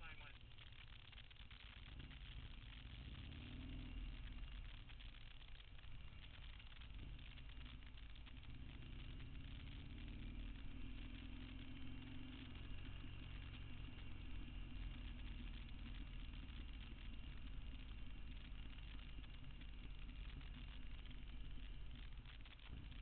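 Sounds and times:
road noise: 0.0s - 23.0s
vehicle engine rumbling: 0.0s - 23.0s.

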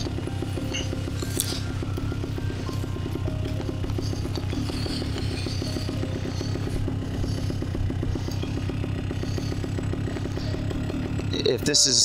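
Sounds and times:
paramotor engine puttering: 0.0s - 12.0s.

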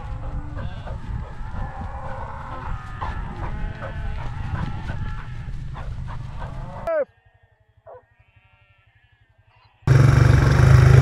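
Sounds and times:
low wind rumble: 0.0s - 6.9s
sheep bleating: 1.6s - 5.6s, 6.5s - 9.9s
quad bike engine: 9.9s - 11.0s.

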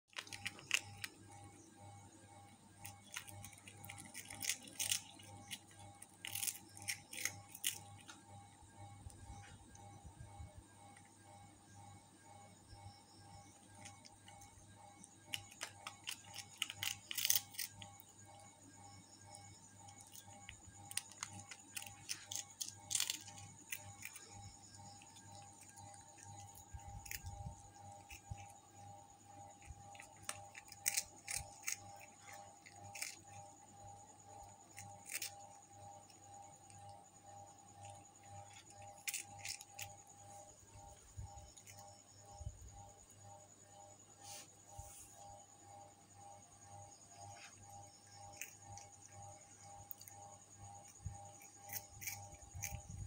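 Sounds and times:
steady low hum: 0.0s - 53.0s
cat chewing crunchy chips: 0.1s - 1.3s, 2.8s - 8.2s, 13.7s - 18.4s, 19.2s - 28.6s, 29.3s - 33.7s, 34.3s - 36.9s, 37.7s - 40.1s, 48.1s - 50.2s, 51.0s - 53.0s.

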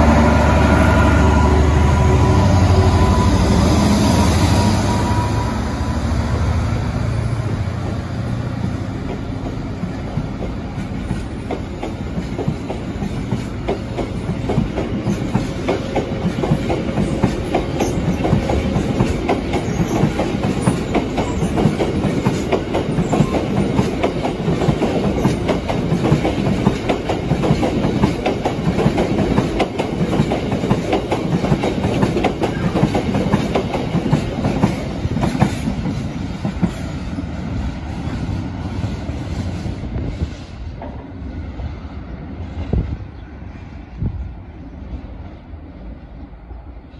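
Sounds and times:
train wheels clattering over rail joints: 8.7s - 36.8s.

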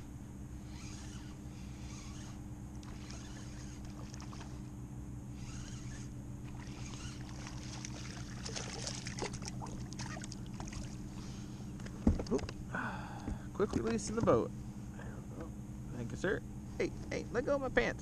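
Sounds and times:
steady low hum: 0.0s - 18.0s
fish splashing at the surface: 6.5s - 11.0s.

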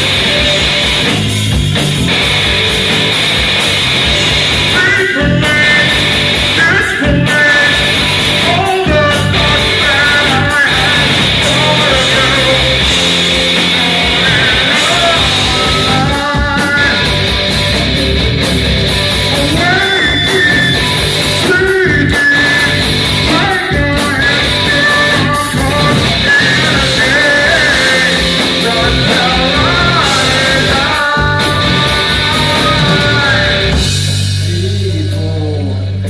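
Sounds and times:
distorted electric guitars: 0.0s - 36.0s
drum kit: 0.0s - 36.0s
person singing and shouting: 4.6s - 18.0s, 19.2s - 33.8s.

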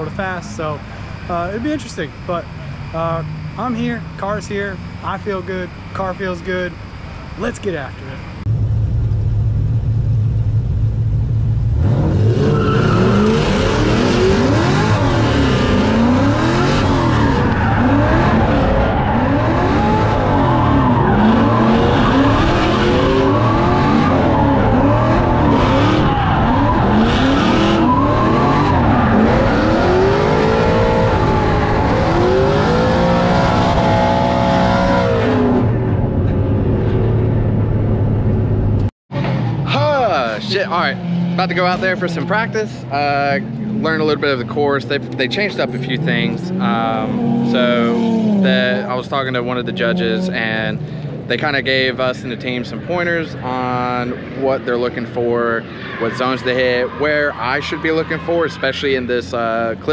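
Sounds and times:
car engines revving hard: 11.6s - 38.0s, 39.2s - 59.9s.

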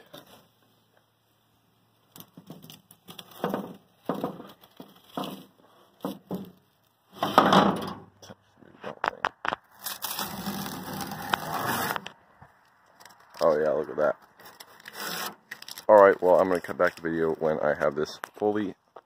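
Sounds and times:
tape ripping off metal: 2.0s - 8.0s, 9.4s - 12.2s, 14.3s - 16.0s.

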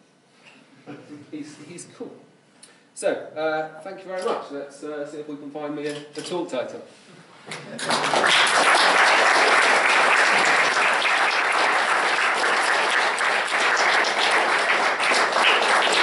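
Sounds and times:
audience applauding: 7.8s - 16.0s.

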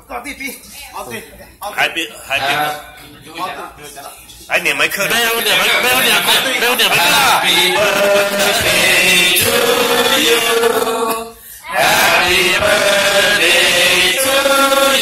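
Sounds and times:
person singing: 7.3s - 15.0s.

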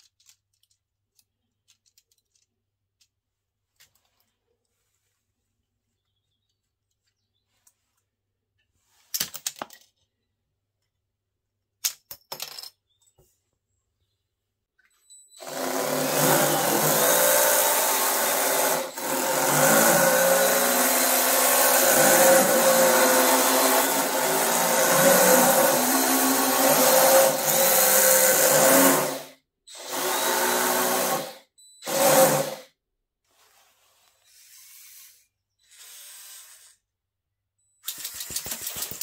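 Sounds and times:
plastic mechanism clicking: 0.0s - 3.2s
toy tank motors whirring: 15.4s - 32.7s, 33.8s - 37.0s, 37.8s - 39.0s.

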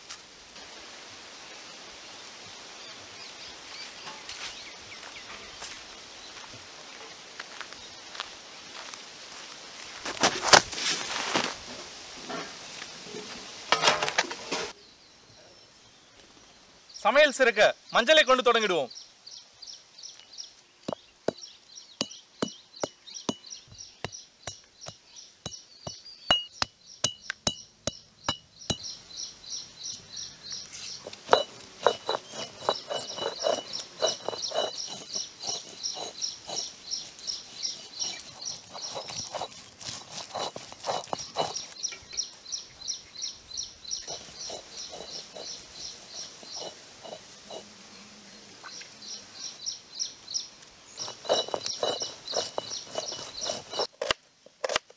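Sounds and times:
bird chirping: 14.8s - 53.9s
stone roller grinding: 30.9s - 41.9s, 44.0s - 47.7s, 51.0s - 54.9s
stone knocking on stone: 31.0s - 36.7s, 40.2s - 41.7s, 51.0s - 53.9s.

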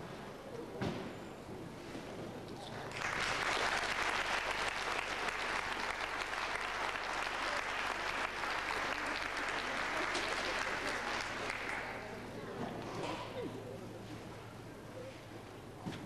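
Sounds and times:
audience applauding: 2.9s - 12.1s.

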